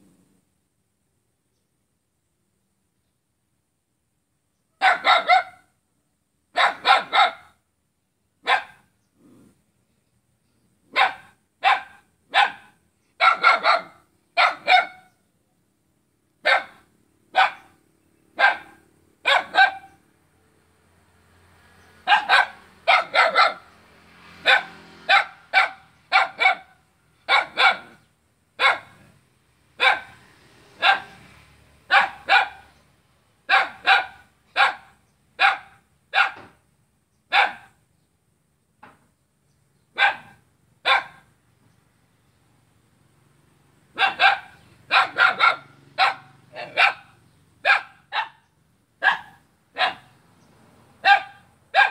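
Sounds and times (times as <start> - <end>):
small dog barking: 4.8 - 5.8, 6.5 - 7.6, 8.4 - 9.5, 10.9 - 15.2, 16.4 - 20.0, 22.0 - 23.8, 24.4 - 29.2, 29.8 - 30.2, 30.8 - 31.3, 31.9 - 32.8, 33.5 - 36.5, 37.3 - 37.8, 39.9 - 41.3, 43.9 - 50.2, 51.0 - 51.9.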